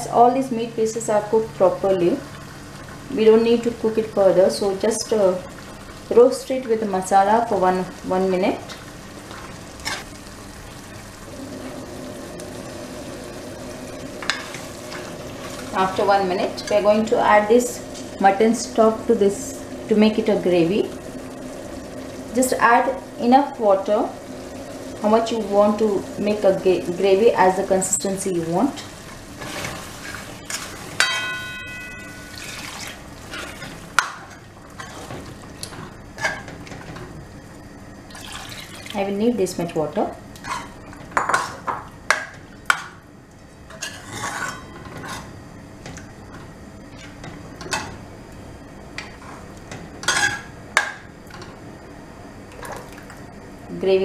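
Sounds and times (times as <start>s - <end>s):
meat frying in a pot: 0.0s - 31.2s, 32.0s - 44.6s.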